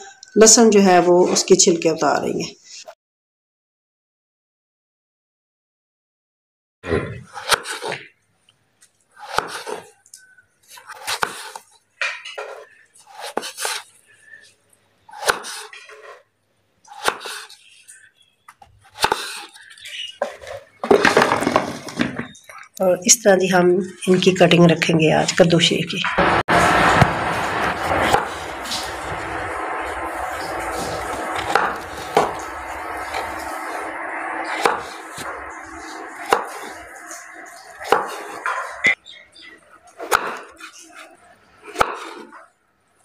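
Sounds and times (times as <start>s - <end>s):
steady background noise: 6.9s - 43.0s
knife chopping pumpkin: 7.2s - 8.0s, 9.2s - 9.9s, 10.8s - 11.6s, 12.4s - 13.9s, 15.1s - 16.2s, 16.9s - 17.6s, 18.8s - 19.7s, 34.5s - 35.3s, 36.2s - 36.8s, 37.8s - 38.4s, 41.7s - 42.4s.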